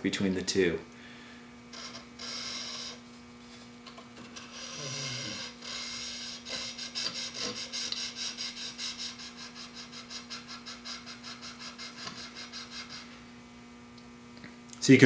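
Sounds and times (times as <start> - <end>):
blade rasping on sharpening stone: 1.7 - 3.0, 4.2 - 13.1.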